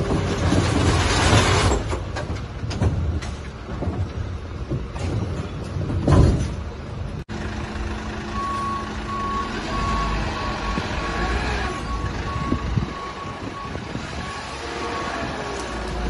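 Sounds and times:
diesel engine running: 6.6 - 16.0
truck reverse alarm beeping: 8.0 - 16.0.

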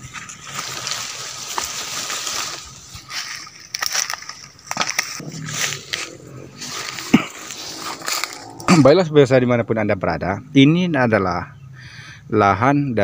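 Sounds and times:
footsteps on dry leaves: 0.0 - 8.8
leaves and stems rustling: 0.0 - 9.0.

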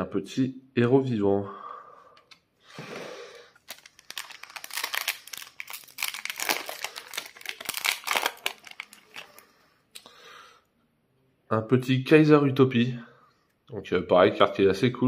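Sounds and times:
foil wrapper crinkling and tearing: 3.6 - 9.4.

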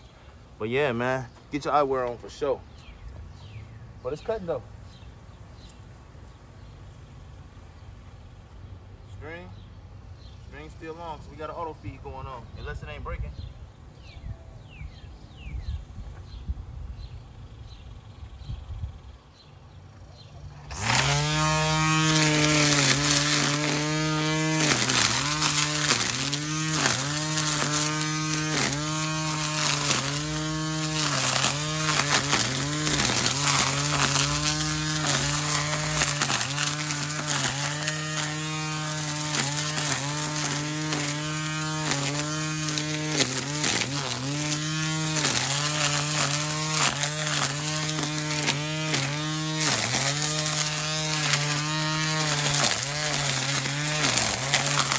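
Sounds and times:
string trimmer running: 20.4 - 54.9.

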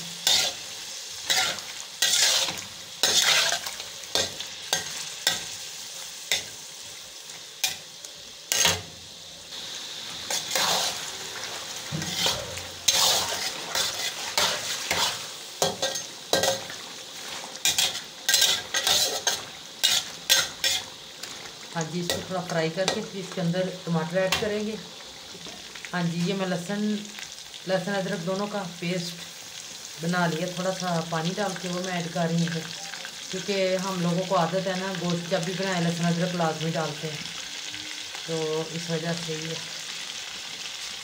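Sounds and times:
chicken sizzling in oil: 0.0 - 41.0
spatula scraping pan: 0.1 - 5.6, 10.2 - 23.0.

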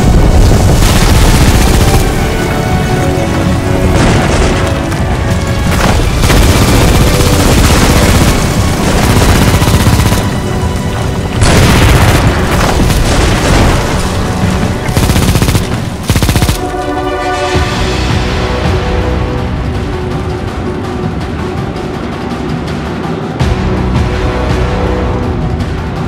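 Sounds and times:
booming explosions: 0.0 - 16.8
dramatic soundtrack music: 0.0 - 26.0.

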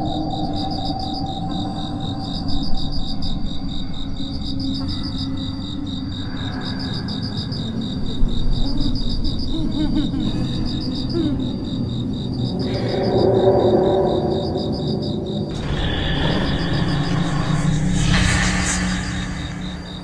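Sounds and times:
crickets chirping: 0.0 - 20.0
steady low noise: 12.6 - 20.0.

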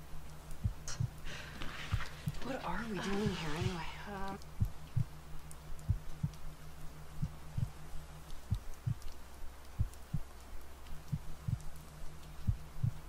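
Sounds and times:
steady low hum: 0.0 - 13.0
slow heartbeat thumps: 0.6 - 2.5, 4.4 - 6.5, 7.2 - 7.8, 8.4 - 9.2, 9.8 - 10.3, 11.0 - 11.8, 12.4 - 13.0.

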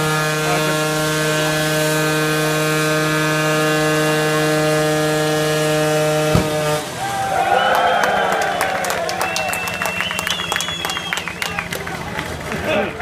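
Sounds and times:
scooter engine high-pitched drone: 0.0 - 7.0.

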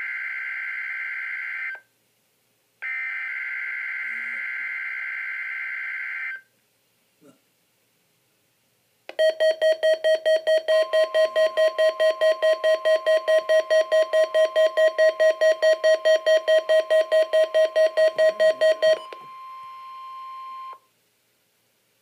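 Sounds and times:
rapid pulsing alert beeps: 9.2 - 20.7
steady alert tone: 10.8 - 20.1.

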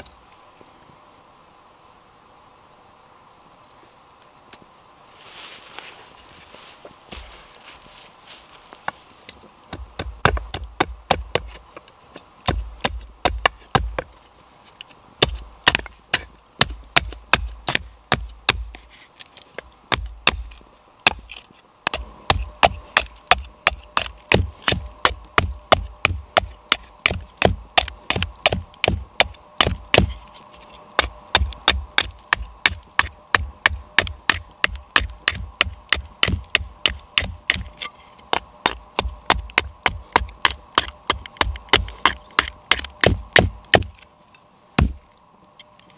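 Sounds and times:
hatchet chopping wood: 9.7 - 14.1, 15.2 - 18.8, 19.6 - 44.0, 44.8 - 45.0.

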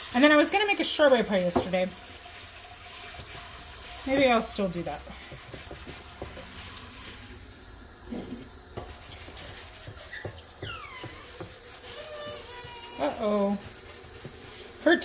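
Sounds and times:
hands tapping pie crust: 5.2 - 6.5
high falling squeal: 10.1 - 11.3.

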